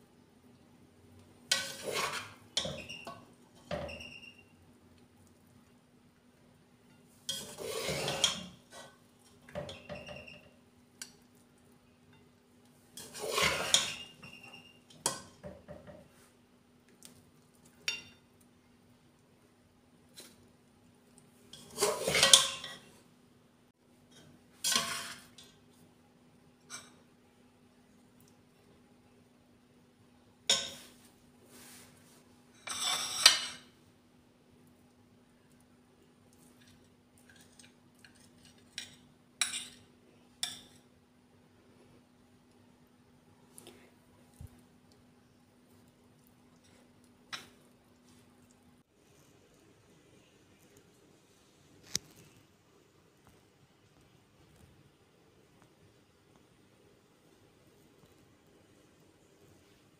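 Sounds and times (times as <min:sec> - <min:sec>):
faint steady hum: 0:00.0 - 0:59.9
spatula scraping glass plate: 0:01.5 - 0:03.1, 0:07.3 - 0:08.9, 0:13.0 - 0:14.4, 0:21.5 - 0:22.9, 0:24.6 - 0:25.4, 0:32.6 - 0:33.6
metal spoon clinking on glass plate: 0:17.9 - 0:18.2.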